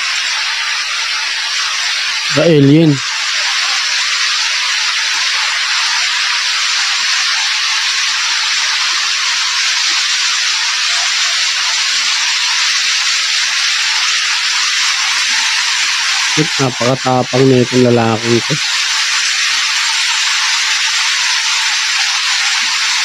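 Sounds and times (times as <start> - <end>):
loud steady hiss: 0.0 - 23.0.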